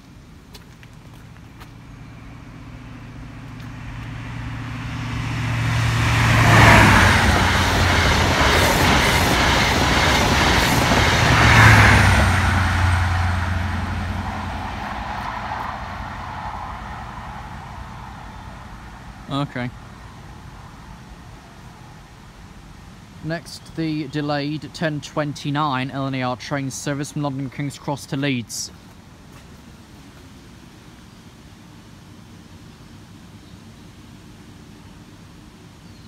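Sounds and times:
diesel train passing at speed: 0:01.2 - 0:28.0
rush of train coaches: 0:02.8 - 0:22.0.

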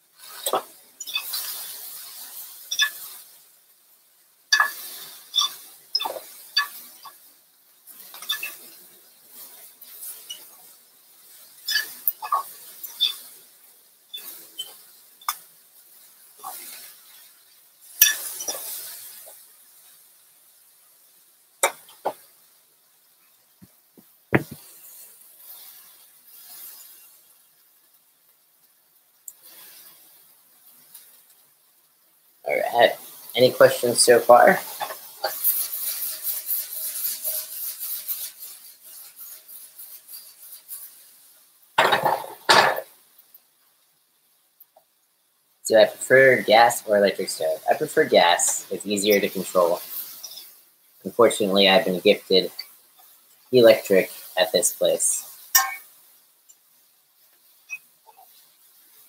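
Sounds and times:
sizzle: 0:00.0 - 0:59.0
metal fork clinking on skillet: 0:00.4 - 0:02.0, 0:02.7 - 0:03.2, 0:04.5 - 0:04.8, 0:08.1 - 0:08.6, 0:11.6 - 0:13.3, 0:18.0 - 0:19.2, 0:55.3 - 0:56.0.

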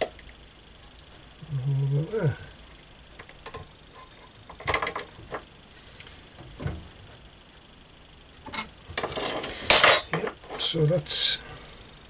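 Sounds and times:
metal hand tools scraping and clicking: 0:08.5 - 0:10.3.

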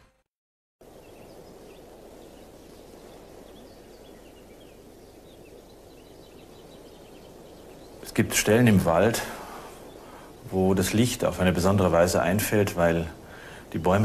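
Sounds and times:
steady outdoor hiss: 0:00.8 - 0:14.0
bird chirps: 0:01.0 - 0:09.1.

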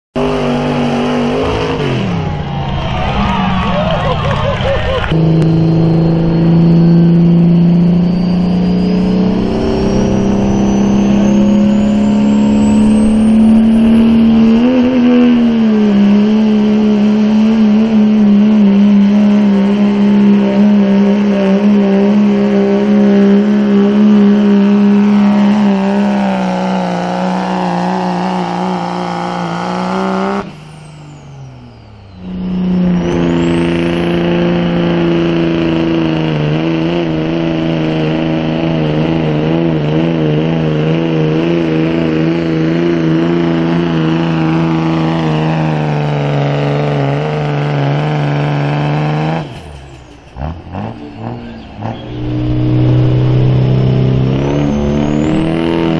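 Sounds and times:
diesel truck engine drone: 0:00.0 - 0:55.9
turbo whistle: 0:04.9 - 0:19.2, 0:21.2 - 0:36.1.

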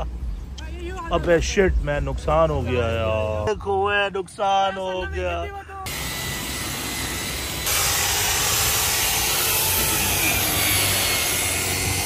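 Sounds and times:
electric polisher whirring: 0:05.9 - 0:12.0.

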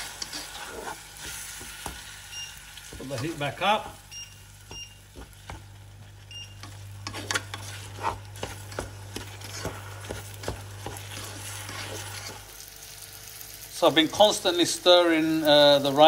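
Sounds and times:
spatula scraping and tapping pan: 0:00.0 - 0:02.1, 0:04.7 - 0:05.7, 0:06.6 - 0:12.4
light sizzle in a pan: 0:00.0 - 0:16.0.

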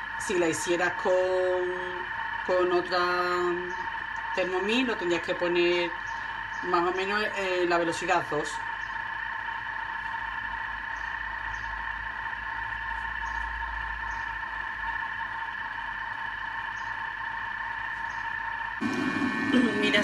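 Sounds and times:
kitchen machine motor hum: 0:18.8 - 0:20.0.

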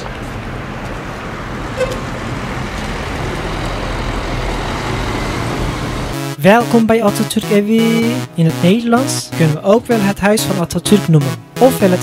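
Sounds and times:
car engine and road noise: 0:00.0 - 0:06.1.

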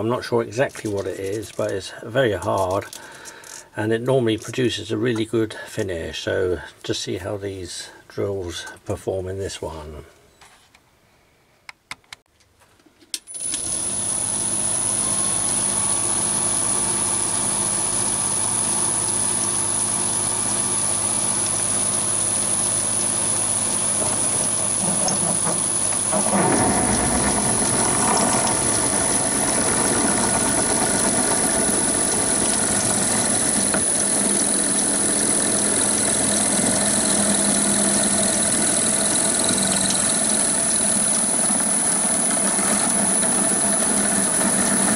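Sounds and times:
drill cutting steel: 0:13.3 - 0:44.9
lathe motor whining: 0:13.3 - 0:44.9.

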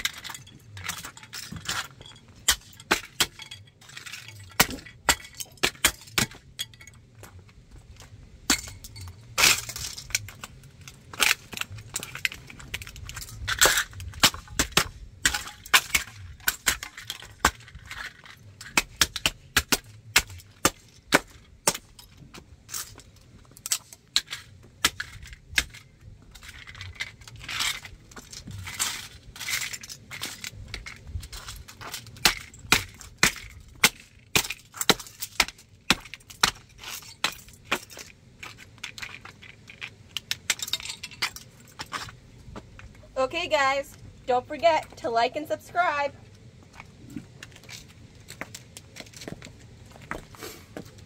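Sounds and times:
pieces scraping on concrete: 0:00.0 - 0:07.0.

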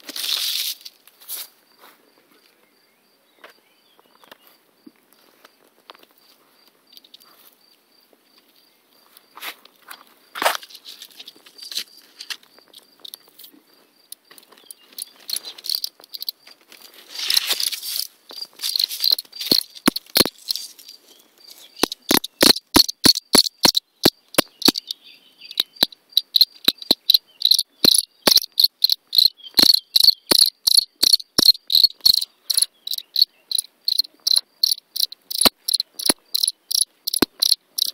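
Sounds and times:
leaves rustling: 0:00.0 - 0:01.6, 0:10.3 - 0:13.6, 0:14.3 - 0:22.1
cricket chirping: 0:00.1 - 0:37.9.

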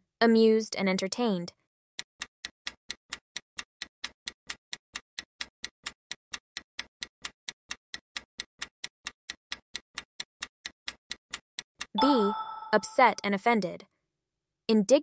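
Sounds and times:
clock ticking: 0:11.9 - 0:13.3.

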